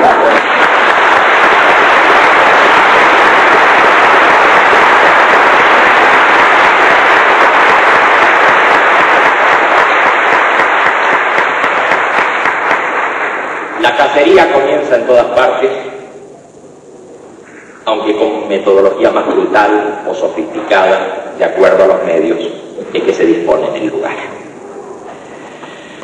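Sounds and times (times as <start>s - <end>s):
audience applauding: 0.0s - 14.7s.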